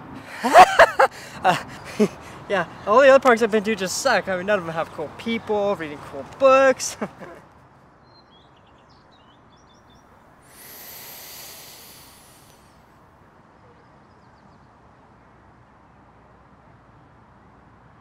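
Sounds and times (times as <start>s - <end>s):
soft rushing noise: 10.5s - 12.7s.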